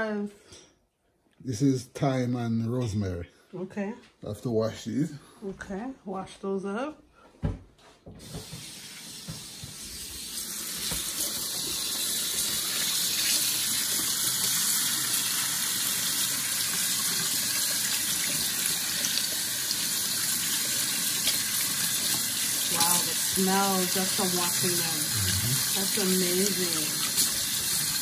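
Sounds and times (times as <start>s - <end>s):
tap running into sink: 7.4s - 12.0s.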